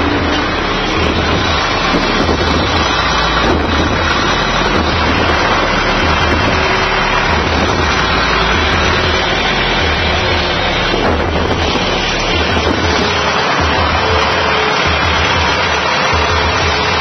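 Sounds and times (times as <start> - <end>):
tractor engine running under load: 0.0 - 17.0.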